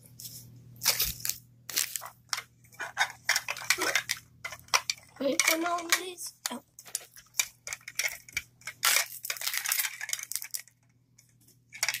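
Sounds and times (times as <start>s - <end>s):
plastic crinkling and clicking: 0.8s - 12.0s.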